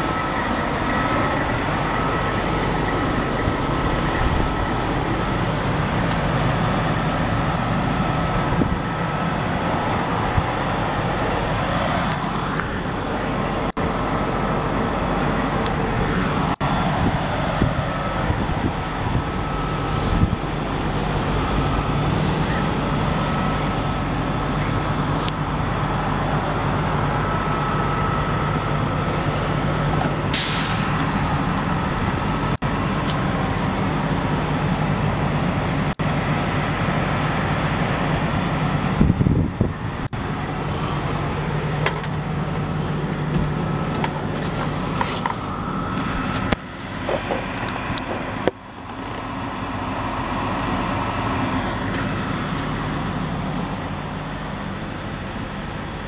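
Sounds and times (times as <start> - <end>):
bus engine idling: 0.0 - 56.0.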